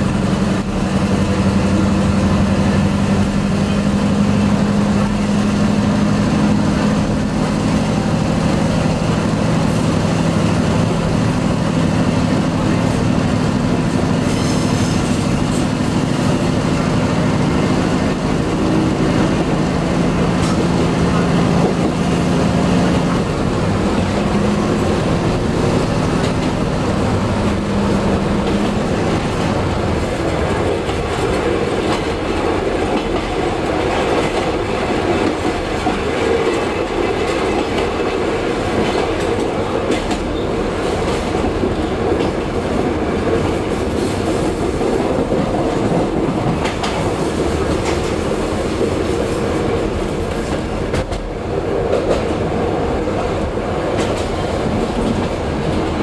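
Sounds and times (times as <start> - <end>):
engine hum: 0.0 - 56.0
train running noise: 0.0 - 56.0
wheels clicking over rail joints: 23.1 - 52.4.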